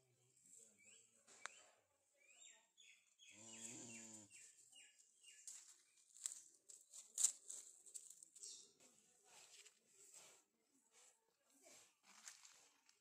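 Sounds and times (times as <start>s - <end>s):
small bird chirping: 0.5s - 7.0s.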